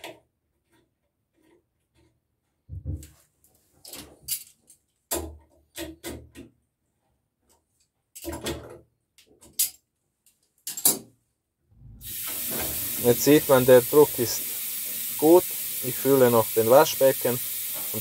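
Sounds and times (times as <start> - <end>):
metallic clicks and knocks: 7.4 - 11.2.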